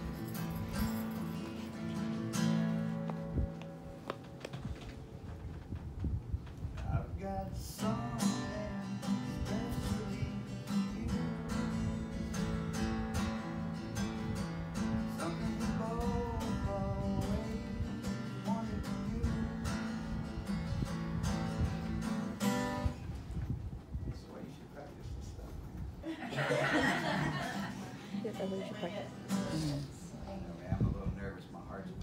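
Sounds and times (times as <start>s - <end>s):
acoustic guitar strumming: 0.0s - 5.2s, 7.2s - 23.0s, 27.4s - 30.1s.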